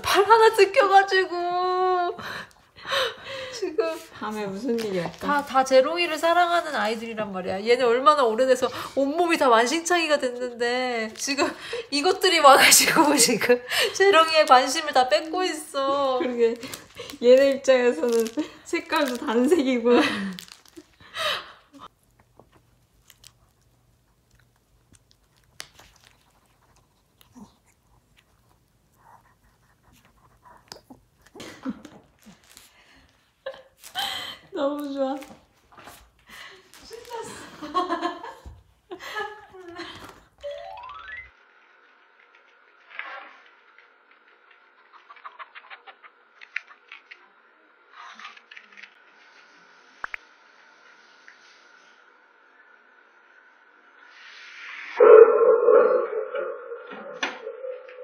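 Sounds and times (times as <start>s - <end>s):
puppy chirp: 55.0s - 58.0s.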